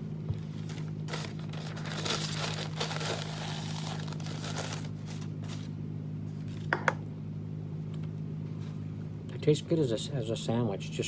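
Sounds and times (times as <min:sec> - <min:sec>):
steady low hum: 0:00.0 - 0:11.0
paper crumpling: 0:00.4 - 0:05.7.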